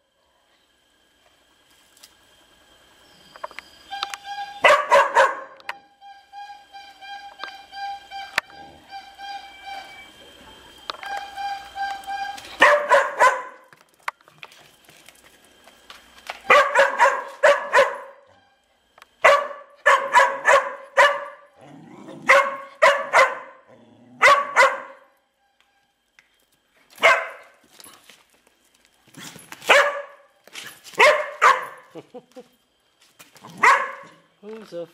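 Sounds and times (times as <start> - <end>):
dog barking: 4.6 - 5.6, 12.6 - 13.6, 16.5 - 18.2, 19.2 - 21.5, 22.2 - 23.6, 24.2 - 25.1, 27.0 - 27.5, 29.7 - 30.3, 31.0 - 31.8, 33.6 - 34.2.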